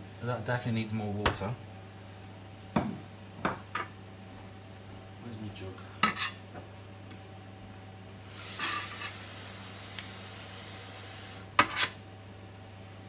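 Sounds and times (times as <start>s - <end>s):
steady low hum: 0.0s - 13.0s
knife scraping metal platter: 6.0s - 6.4s, 11.6s - 12.0s.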